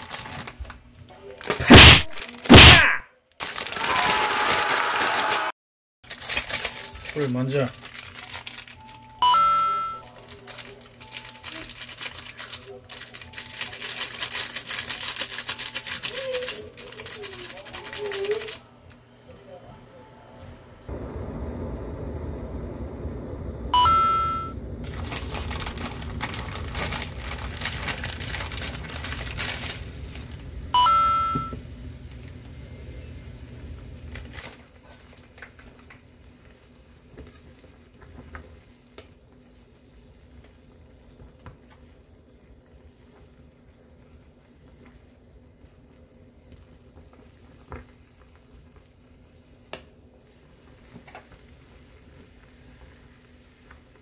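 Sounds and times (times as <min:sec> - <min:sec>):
crinkling: 0:00.0 - 0:02.6, 0:03.3 - 0:04.3, 0:06.0 - 0:09.2, 0:10.0 - 0:18.6, 0:24.8 - 0:30.5
loud electronic beeps: 0:23.8 - 0:24.6
broth boiling in a saucepan: 0:34.6 - 0:54.0.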